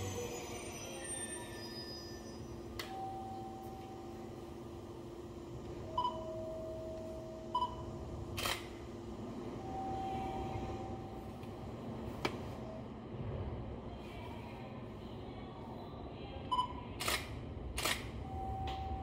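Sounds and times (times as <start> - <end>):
electric train humming: 0.0 - 13.4, 18.1 - 19.0
short beeps: 5.9 - 7.9, 18.2 - 19.0.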